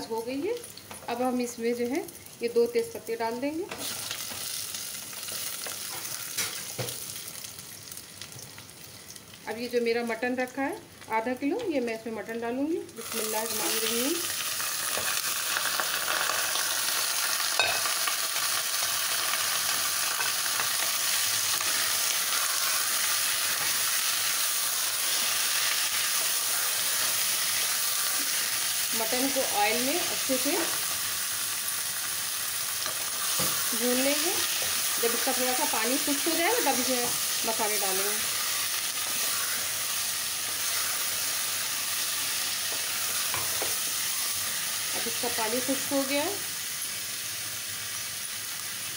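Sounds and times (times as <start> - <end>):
meat sizzling in hot oil: 0.0 - 48.9.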